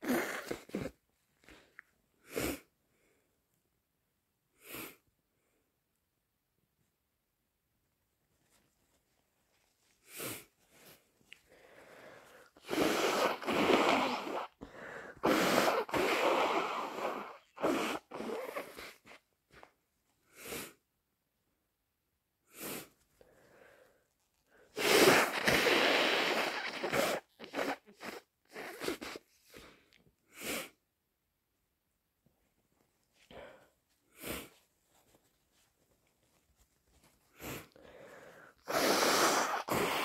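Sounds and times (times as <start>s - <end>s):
person sneezing: 0.0s - 1.0s, 12.6s - 14.6s, 15.2s - 19.1s, 24.7s - 29.3s, 38.6s - 40.0s
person blowing nose: 0.0s - 1.6s, 2.2s - 2.7s, 4.6s - 5.0s, 10.0s - 11.0s, 11.7s - 19.2s, 20.3s - 20.8s, 22.5s - 23.0s, 24.6s - 30.8s, 33.2s - 35.2s, 37.2s - 40.0s.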